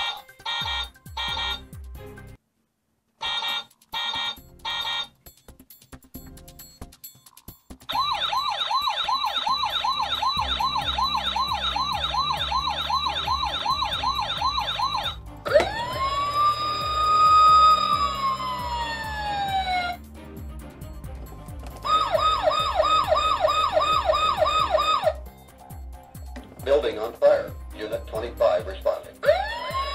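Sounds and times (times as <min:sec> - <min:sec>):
toy electronic siren: 0:00.0 - 0:01.6, 0:03.2 - 0:05.1, 0:07.9 - 0:20.0, 0:21.8 - 0:25.2, 0:29.2 - 0:29.9.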